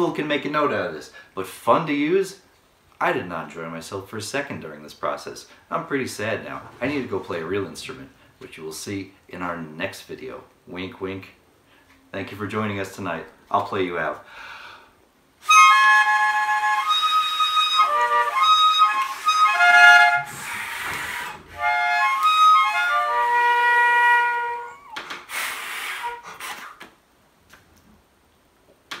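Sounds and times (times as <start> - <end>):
toy harmonica notes: 15.4 - 26.7
breathy rushes of air: 20.2 - 21.6.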